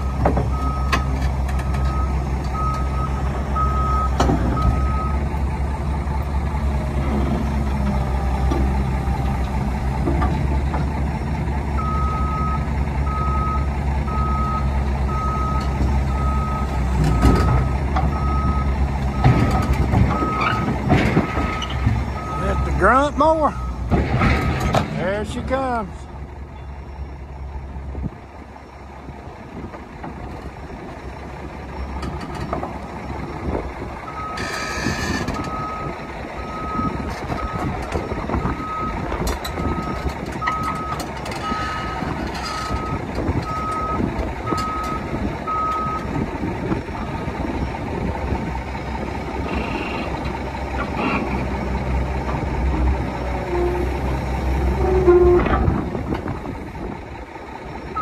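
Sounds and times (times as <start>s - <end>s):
diesel engine running: 0.0s - 58.0s.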